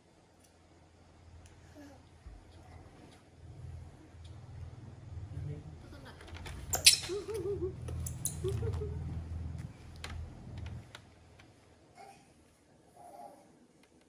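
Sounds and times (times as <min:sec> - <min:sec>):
short wavering squeaks: 0:06.7 - 0:09.0.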